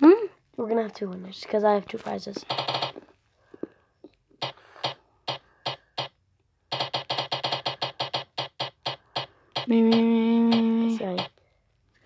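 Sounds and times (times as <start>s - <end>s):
spinning wheel app ticks: 6.7s - 11.3s.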